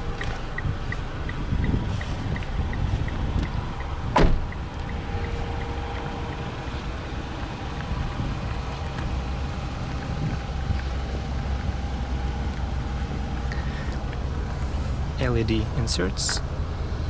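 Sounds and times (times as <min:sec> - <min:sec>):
car engine idling: 0:00.0 - 0:17.0
car door slamming: 0:04.0 - 0:04.5.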